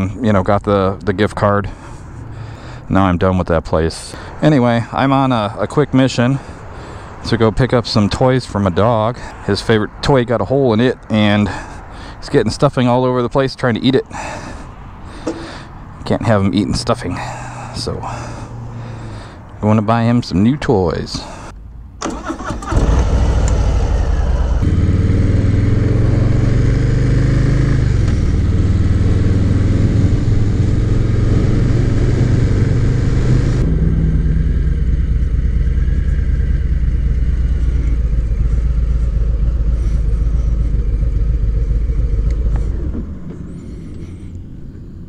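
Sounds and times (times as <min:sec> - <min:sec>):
motorcycle engine running: 0:22.7 - 0:45.0.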